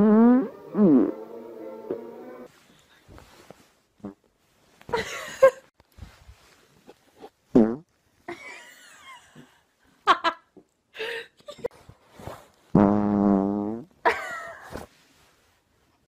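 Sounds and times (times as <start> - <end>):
long fart: 0.0 - 1.2, 7.5 - 7.9, 12.7 - 14.0
woman laughing: 4.9 - 5.7, 8.3 - 11.7, 14.1 - 14.7.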